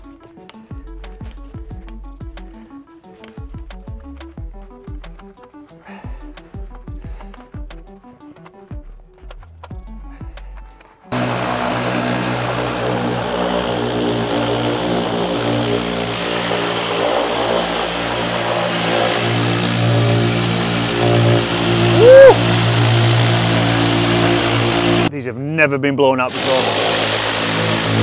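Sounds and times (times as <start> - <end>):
pressure washer running: 11.1 - 25.1, 26.3 - 28.0
water jet hissing: 11.1 - 25.1, 26.3 - 28.0.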